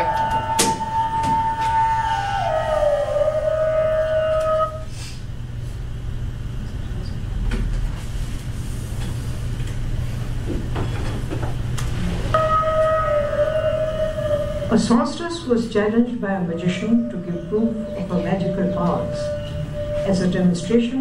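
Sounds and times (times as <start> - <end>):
low hum: 0.0 - 5.0, 12.0 - 21.0
held tone sliding down: 12.4 - 15.1.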